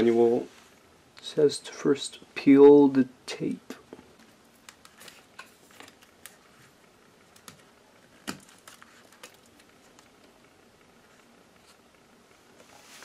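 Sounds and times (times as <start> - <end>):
fingers clicking and tapping laptop: 4.2 - 6.4, 7.2 - 10.4.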